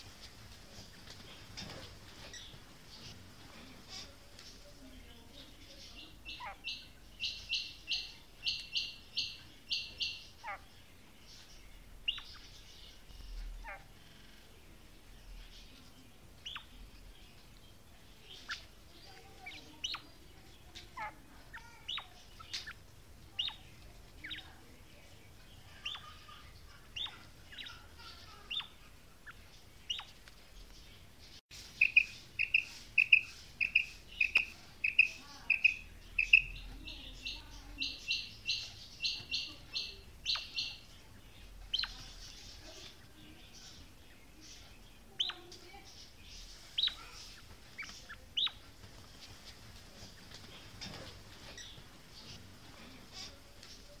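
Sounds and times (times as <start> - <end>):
quail calling: 31.8 - 40.8.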